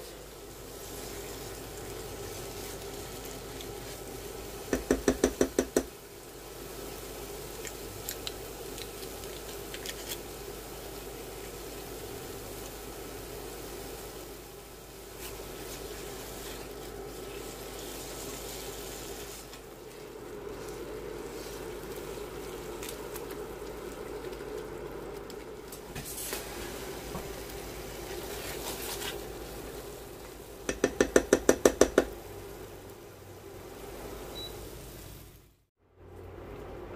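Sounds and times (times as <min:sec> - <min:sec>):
spatula stirring and scraping: 0:00.0 - 0:05.9, 0:07.6 - 0:12.7, 0:14.7 - 0:32.1
food sizzling in a frying pan: 0:00.0 - 0:35.6.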